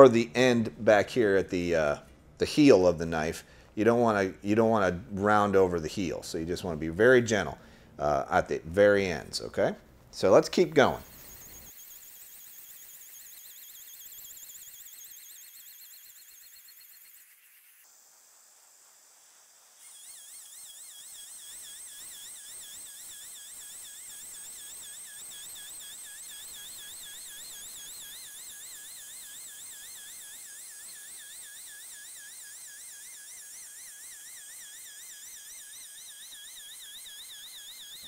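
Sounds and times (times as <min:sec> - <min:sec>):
belt grinder whining: 0:10.3 - 0:17.8, 0:19.2 - 0:38.0
steady hiss: 0:17.3 - 0:21.1.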